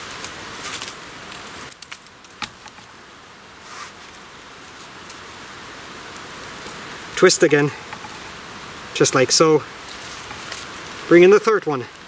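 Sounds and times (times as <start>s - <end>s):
small crackles and clicks: 0.0s - 3.0s, 4.0s - 5.3s, 9.8s - 12.0s
bramble stems rustling and scraping: 0.0s - 12.0s
steady hiss: 0.0s - 12.0s.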